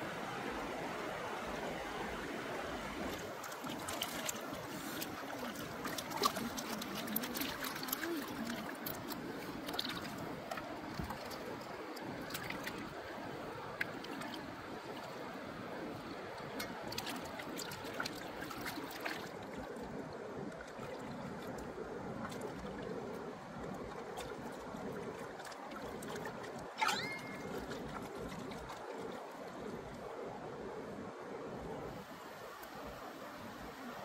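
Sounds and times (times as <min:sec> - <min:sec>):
river water running and lapping: 0:00.0 - 0:34.0
small clicks and splashes: 0:03.1 - 0:15.3, 0:16.0 - 0:30.1.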